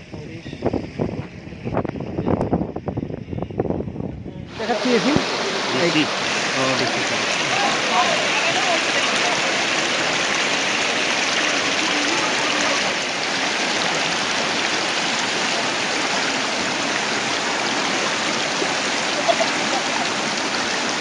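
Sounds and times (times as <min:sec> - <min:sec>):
floodwater rushing: 0:04.4 - 0:21.0.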